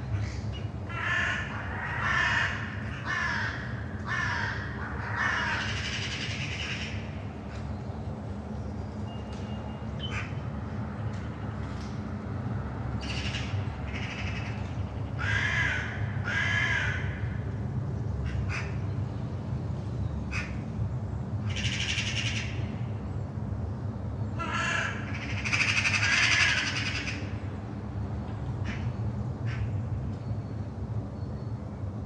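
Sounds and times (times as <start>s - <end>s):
aircraft engine drone: 0.0s - 32.0s
crows cawing: 0.9s - 7.1s, 13.0s - 17.4s, 18.2s - 18.8s, 20.3s - 20.6s, 21.4s - 22.6s, 24.4s - 27.4s, 28.6s - 29.7s.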